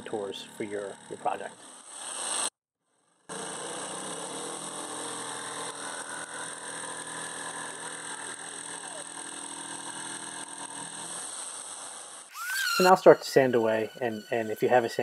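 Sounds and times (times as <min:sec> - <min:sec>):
jigsaw cutting wood: 0:00.0 - 0:02.6, 0:03.3 - 0:15.0.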